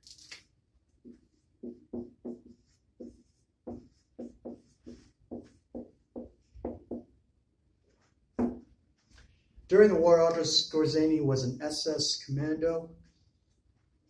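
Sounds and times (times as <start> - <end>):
marker squeaking on whiteboard: 1.0 - 6.5.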